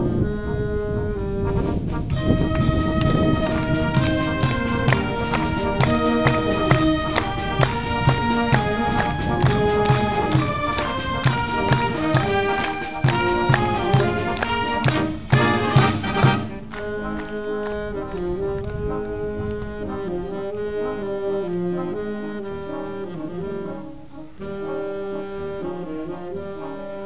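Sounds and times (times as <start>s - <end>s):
concert band playing a march: 0.0s - 27.0s
low march beat: 0.0s - 27.0s.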